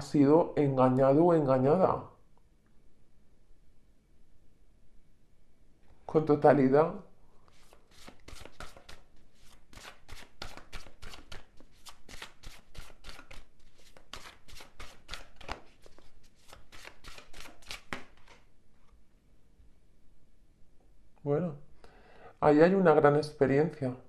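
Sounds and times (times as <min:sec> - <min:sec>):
cards being shuffled: 0:07.5 - 0:19.0.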